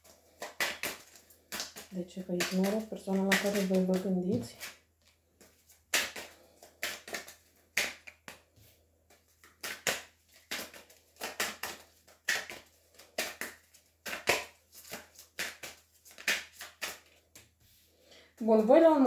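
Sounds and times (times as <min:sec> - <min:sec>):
cards being shuffled: 0:00.0 - 0:17.9.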